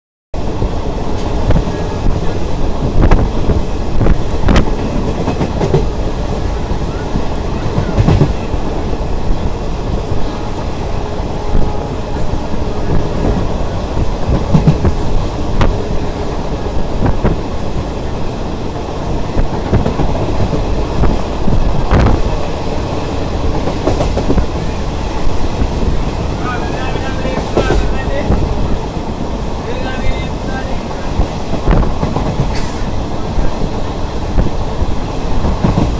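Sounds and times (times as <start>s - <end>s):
train wheels rumbling on rails: 0.4s - 35.9s
clacks over rail joints: 1.1s - 8.5s, 12.9s - 15.9s, 23.4s - 24.6s, 25.3s - 28.5s, 31.2s - 32.9s, 35.4s - 35.9s.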